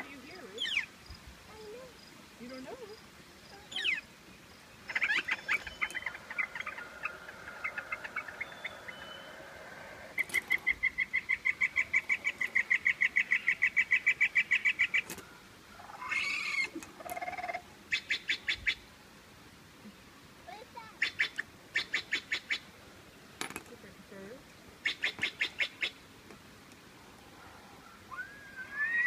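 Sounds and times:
harsh bird calls: 0.0 - 0.9, 3.6 - 4.1, 4.7 - 15.2, 15.8 - 18.8, 24.8 - 26.0, 27.4 - 29.0
trilling bird song: 0.2 - 0.9, 3.6 - 15.1, 27.9 - 29.0
long fast bird trill: 4.9 - 14.9, 28.1 - 29.0
falling whistle birdsong: 5.0 - 10.4, 28.1 - 29.0.

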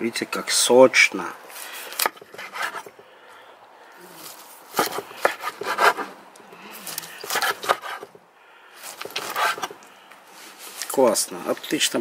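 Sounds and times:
knife scraping wooden board: 1.6 - 3.0, 4.2 - 6.2, 6.8 - 8.2, 8.8 - 9.8
knife sawing through meat: 4.8 - 6.1, 6.9 - 8.1, 9.0 - 9.7.

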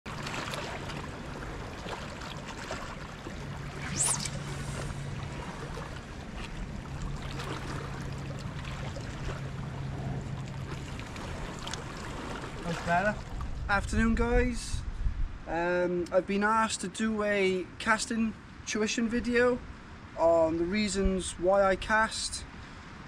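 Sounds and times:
fishing rod swish: 3.6 - 5.1.

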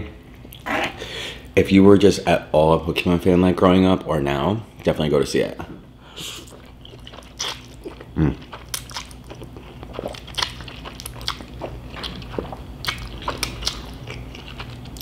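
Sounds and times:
person slurping and chewing noodles: 6.2 - 15.0.

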